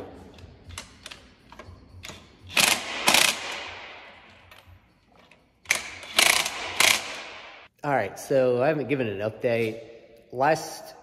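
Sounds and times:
ratchet wrench clicking: 0.4s - 3.6s, 5.6s - 7.4s.

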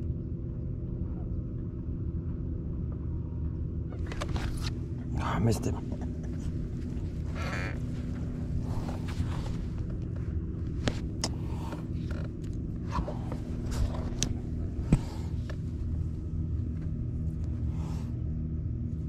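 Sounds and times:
camera handling clicks and scrapes: 4.1s - 4.8s
electric motor humming: 6.0s - 18.1s.

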